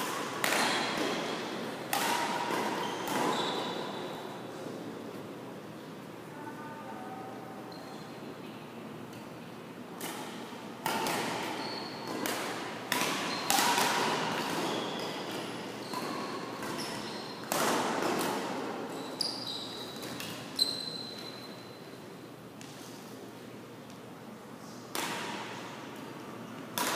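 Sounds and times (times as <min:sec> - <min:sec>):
badminton racket hitting shuttlecock: 0:00.0 - 0:03.3, 0:10.0 - 0:18.7
sneakers squeaking on court: 0:02.5 - 0:04.2, 0:11.4 - 0:12.3, 0:13.1 - 0:13.6, 0:14.4 - 0:17.5, 0:18.9 - 0:21.8.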